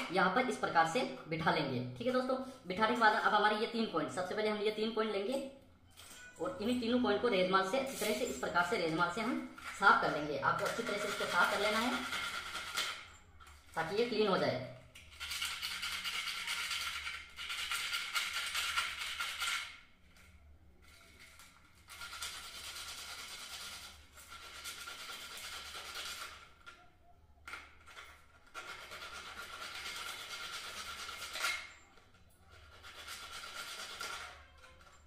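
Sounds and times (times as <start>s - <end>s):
emery paper rasping on metal: 21.4s - 26.5s, 28.4s - 31.8s, 32.4s - 35.0s.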